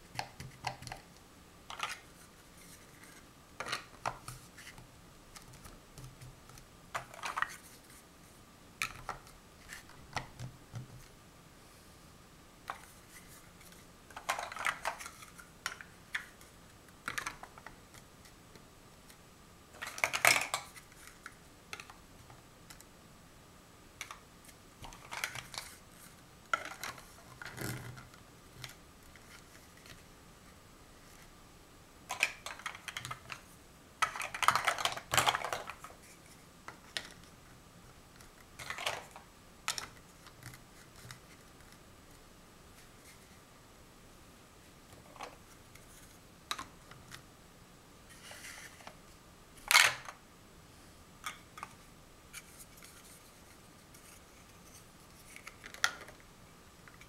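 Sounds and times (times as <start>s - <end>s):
plastic blocks clicking and clattering: 1.7s - 7.7s, 8.8s - 11.1s, 13.6s - 18.6s, 19.8s - 22.0s, 24.8s - 25.8s, 26.5s - 30.0s, 32.1s - 33.4s, 34.0s - 36.0s, 38.2s - 41.8s, 49.6s - 50.2s, 55.2s - 56.2s.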